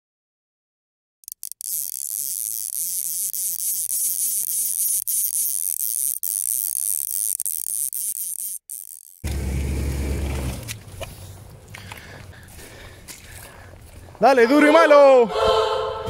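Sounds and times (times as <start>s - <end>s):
high-pitched buzzing hiss: 1.2s - 9.2s.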